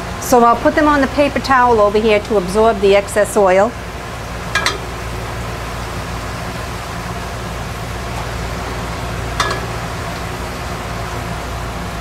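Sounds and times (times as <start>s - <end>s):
vent hood fan whooshing: 0.0s - 12.0s
metallic clink: 4.6s - 4.9s, 9.4s - 9.8s.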